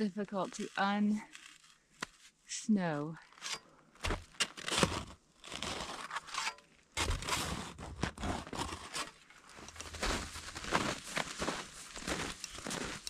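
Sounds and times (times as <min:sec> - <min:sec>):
snow scraping and crunching: 0:03.3 - 0:13.0.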